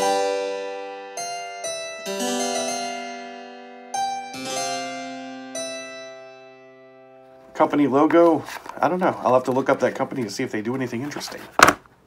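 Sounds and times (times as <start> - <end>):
harpsichord-like keyboard music: 0.0 - 8.0.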